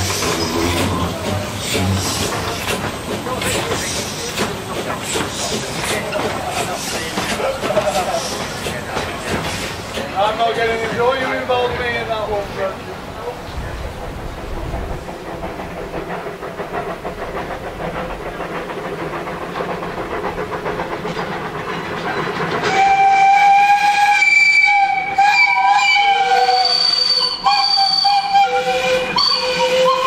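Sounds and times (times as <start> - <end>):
steam locomotive exhaust beating: 0.0 - 30.0
steam whistle blasts: 22.6 - 30.0.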